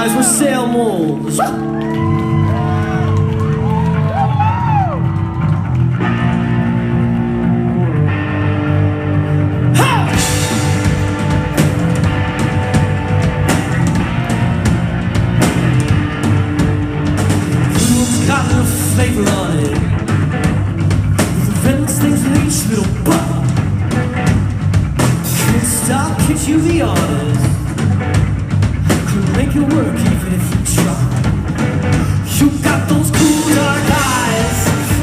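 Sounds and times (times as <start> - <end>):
electric bass: 0.0 - 35.0
electric guitar: 0.0 - 35.0
drums and cymbals: 9.8 - 35.0.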